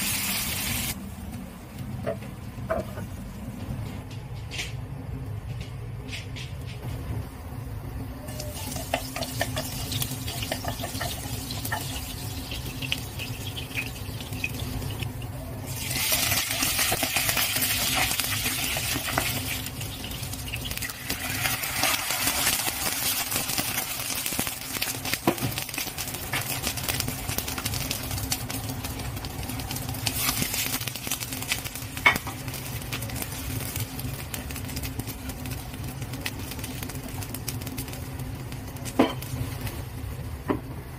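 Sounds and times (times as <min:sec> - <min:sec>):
oil crackling in frying pan: 0:00.0 - 0:03.6, 0:08.2 - 0:40.9
loud sizzle: 0:00.0 - 0:40.9
water pouring into pan: 0:15.7 - 0:19.8, 0:20.6 - 0:24.0.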